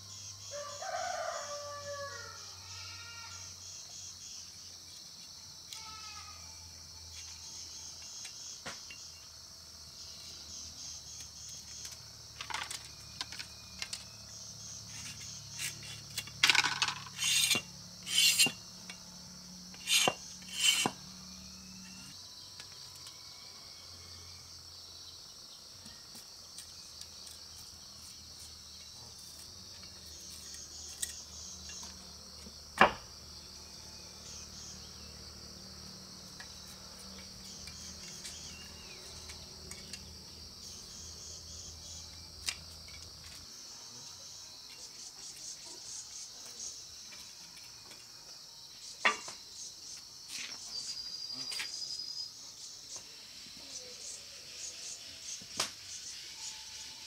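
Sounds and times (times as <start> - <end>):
insects shrilling: 0.1 - 9.3, 10.0 - 22.4
rooster crowing: 0.5 - 2.7.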